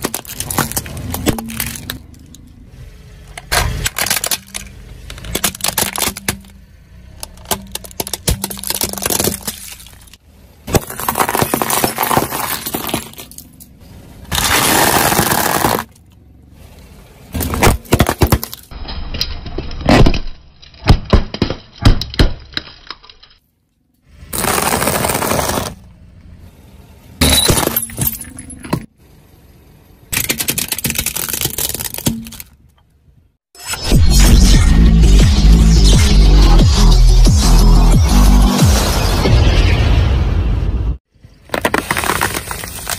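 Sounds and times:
plastic toys cracking and crunching: 0:00.0 - 0:02.6, 0:03.3 - 0:13.7, 0:14.3 - 0:16.2, 0:17.4 - 0:23.5, 0:24.3 - 0:25.8, 0:30.1 - 0:32.8, 0:41.4 - 0:42.9.

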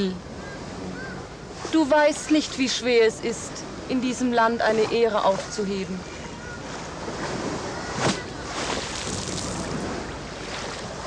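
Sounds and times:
wind: 0:00.0 - 0:11.0
lake water lapping: 0:04.6 - 0:11.0.

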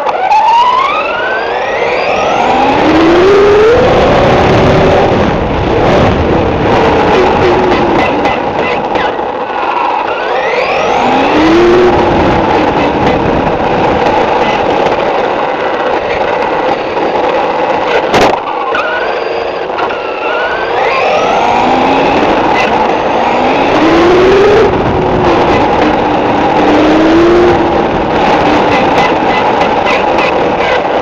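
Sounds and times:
rushing road noise: 0:00.0 - 0:31.0
rc buggy motor whining: 0:00.3 - 0:31.0.

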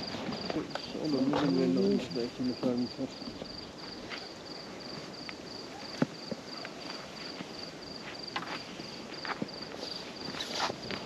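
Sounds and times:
cricket chirping: 0:00.0 - 0:11.0
footsteps scuffing: 0:03.8 - 0:04.3, 0:05.8 - 0:11.0.

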